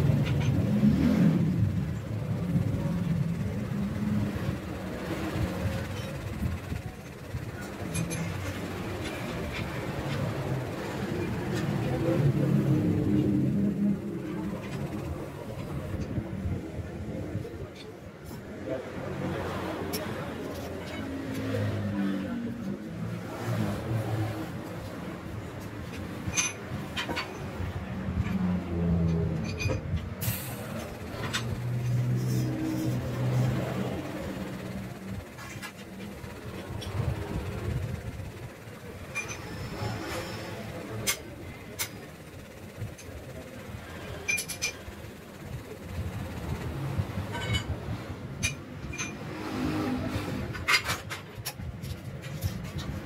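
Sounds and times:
low workshop rumble: 0:00.0 - 0:53.0
metallic clicks and clinks: 0:02.3 - 0:16.1, 0:29.0 - 0:45.9, 0:46.7 - 0:49.4.

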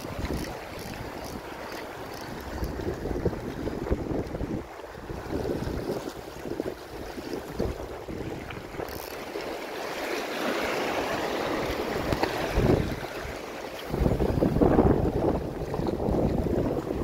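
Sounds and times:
wind buffeting microphone: 0:00.0 - 0:09.2, 0:11.3 - 0:17.0
waves splashing on rocks: 0:05.1 - 0:15.7.

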